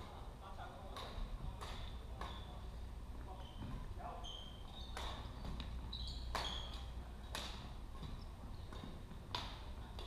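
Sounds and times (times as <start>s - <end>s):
rackets striking shuttlecock: 0.9s - 2.5s, 4.9s - 10.0s
shoes squeaking on wooden floor: 3.3s - 6.9s, 8.0s - 9.2s.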